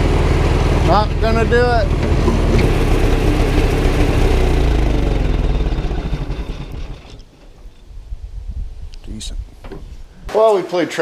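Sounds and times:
tractor engine winding down: 0.0 - 7.8.

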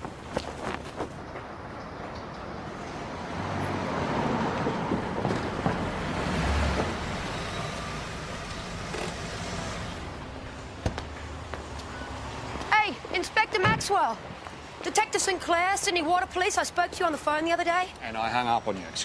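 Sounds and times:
street traffic: 0.0 - 19.0
car driving by: 3.2 - 10.3.

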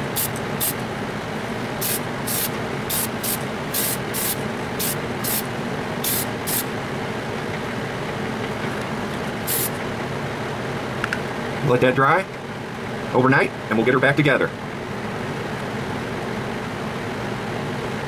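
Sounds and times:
spray paint can hissing bursts: 0.0 - 0.8, 1.8 - 6.7, 9.4 - 9.8
steady background noise: 0.0 - 18.0.

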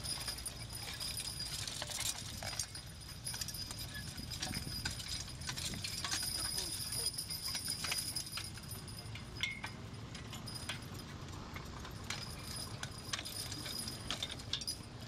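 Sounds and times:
low steady rumble: 0.0 - 15.0
metal harness clinking and jingling: 0.0 - 15.0.

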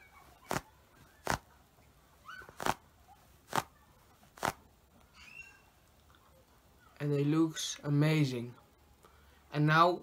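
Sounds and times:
glove palms clapped together: 0.5 - 1.5, 2.5 - 2.8, 3.5 - 3.7, 4.4 - 4.6.

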